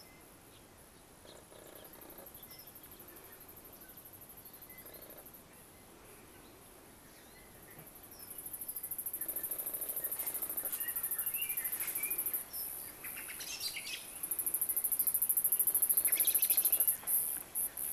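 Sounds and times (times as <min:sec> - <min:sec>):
insects chirring: 0:01.3 - 0:05.4, 0:07.9 - 0:17.9
bird chirps: 0:15.3 - 0:17.8.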